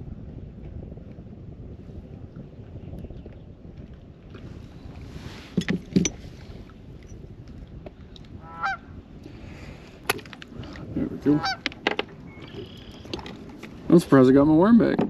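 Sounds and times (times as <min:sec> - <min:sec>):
low wind rumble: 0:00.0 - 0:15.0
sharp knocks and thumps: 0:05.5 - 0:06.2
geese honking: 0:08.4 - 0:08.9, 0:11.2 - 0:11.7.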